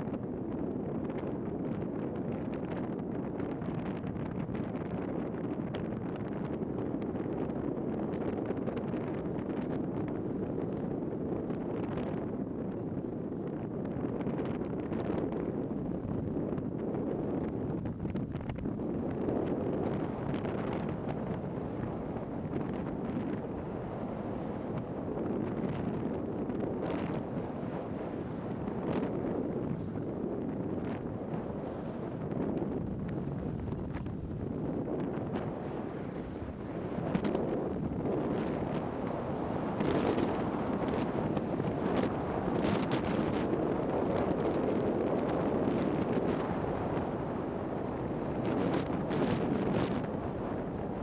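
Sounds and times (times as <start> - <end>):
wind buffeting microphone: 0.0 - 51.0.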